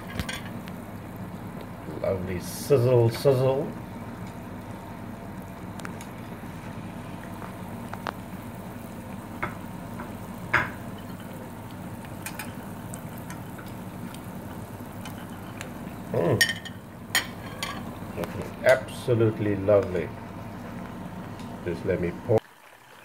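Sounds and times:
food sizzling in hot oil: 0.0 - 23.0
oil popping: 4.2 - 19.0.

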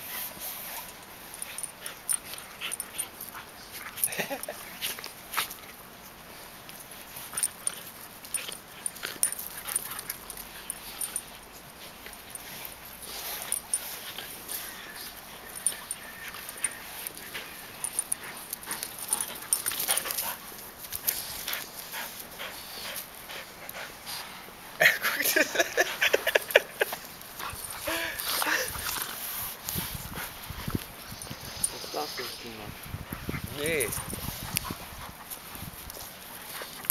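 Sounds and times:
puppies whining and yipping: 12.1 - 20.2.

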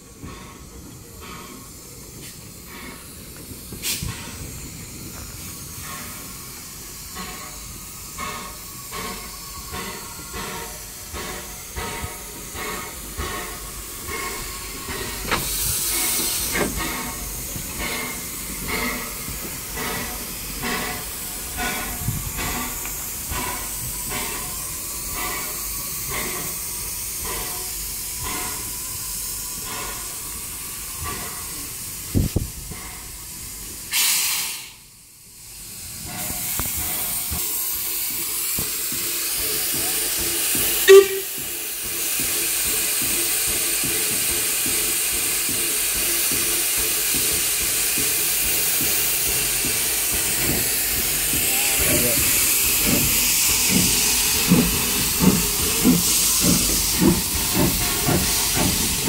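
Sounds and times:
steam engine hissing: 0.0 - 59.0
steam whistle pip: 40.8 - 41.5.

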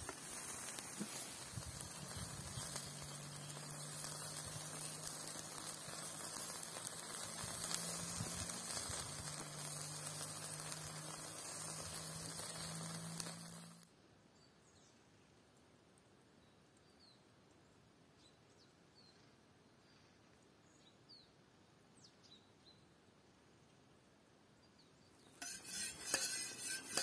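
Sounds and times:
small pops: 0.0 - 13.8
kebabs sizzling over charcoal: 0.0 - 13.9, 25.3 - 27.0.

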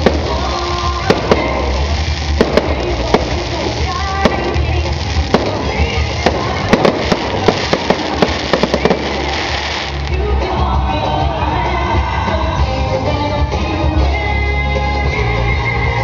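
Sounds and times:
fireworks bursting: 0.0 - 11.2
music: 0.0 - 16.0.

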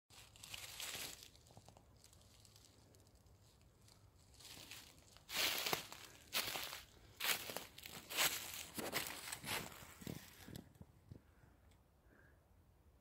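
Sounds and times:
footsteps in dry leaves: 0.1 - 10.5.

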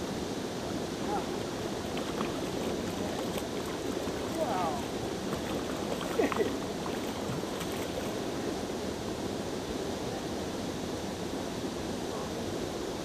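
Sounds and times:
wind: 0.0 - 13.0
water lapping around boat: 0.8 - 8.8.

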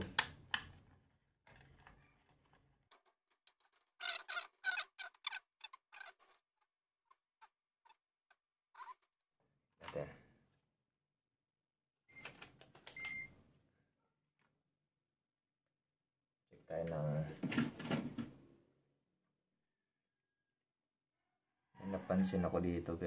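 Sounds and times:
plastic parts clicking and scraping: 0.5 - 9.2.

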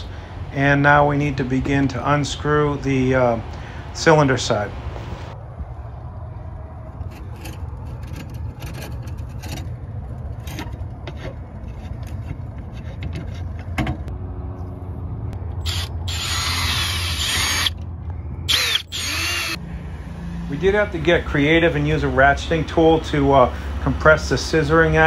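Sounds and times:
drill bit scraping metal: 15.6 - 17.7, 18.5 - 19.6
cordless drill whining: 15.6 - 17.8, 18.5 - 19.6.

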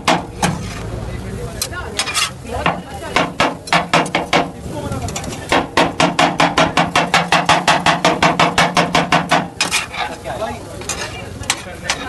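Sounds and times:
cleaver striking metal griddle: 0.0 - 0.8, 5.2 - 10.2
scraping on griddle: 0.0 - 4.3, 6.4 - 12.0.

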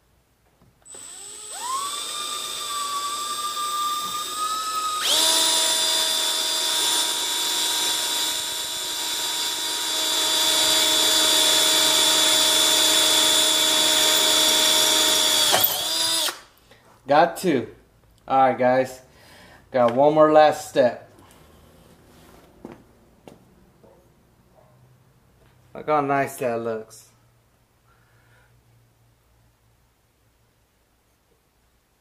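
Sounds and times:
cordless drill whining: 0.8 - 16.5.

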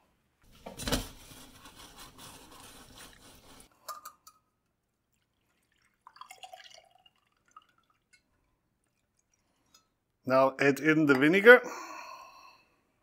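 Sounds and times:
water trickling through a sieve: 1.1 - 3.7, 4.6 - 10.1.

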